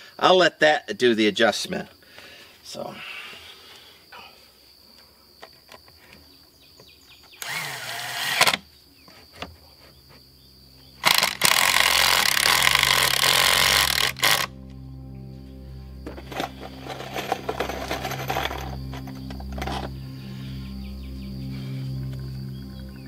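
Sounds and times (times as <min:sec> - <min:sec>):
power driver driving screws: 0:07.4 - 0:08.6, 0:11.0 - 0:14.5.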